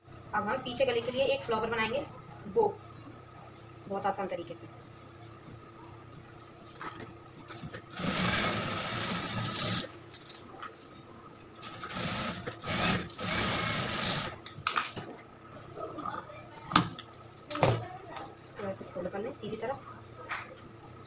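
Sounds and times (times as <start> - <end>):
sewing machine stitching: 7.9 - 9.9, 11.6 - 14.4.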